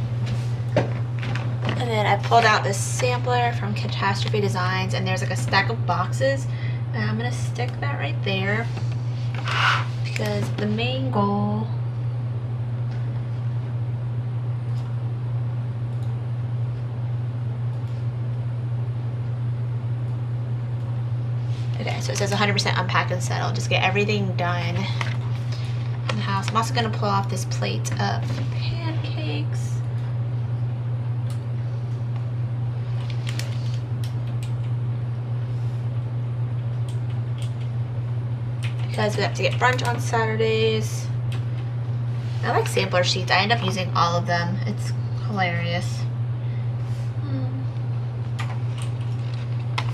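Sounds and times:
low hum: 0:00.0 - 0:49.9.

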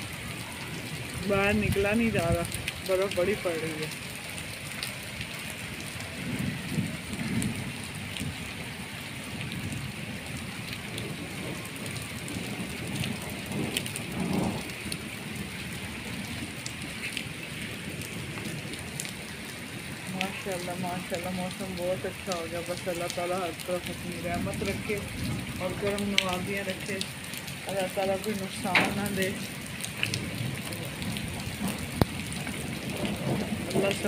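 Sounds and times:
heavy rain on concrete: 0:00.0 - 0:34.0
hail ticking: 0:10.7 - 0:34.0.

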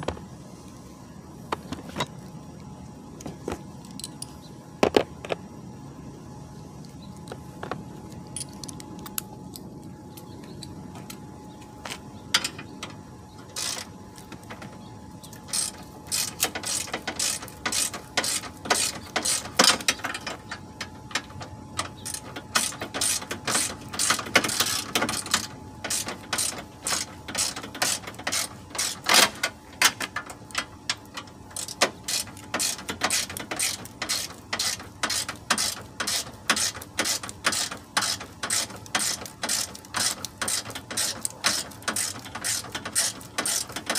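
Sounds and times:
ratchet wrench clicking: 0:15.5 - 0:20.4, 0:31.6 - 0:43.9.

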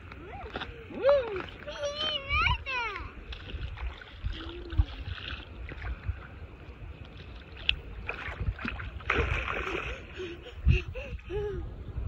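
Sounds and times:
wind rumble on microphone: 0:00.0 - 0:12.0
seawater sloshing and splashing: 0:03.2 - 0:10.5.

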